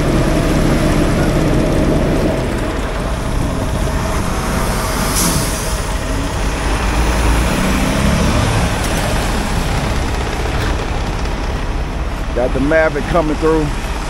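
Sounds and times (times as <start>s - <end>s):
diesel truck engine running: 0.0s - 14.0s
brief air hiss: 5.0s - 5.9s.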